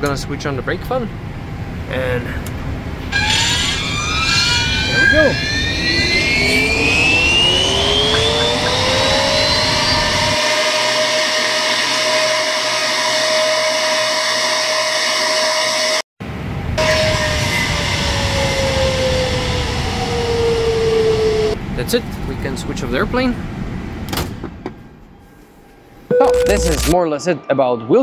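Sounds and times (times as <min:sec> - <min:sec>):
cooling fan whine: 0:00.0 - 0:04.1, 0:04.8 - 0:14.8, 0:16.3 - 0:24.1.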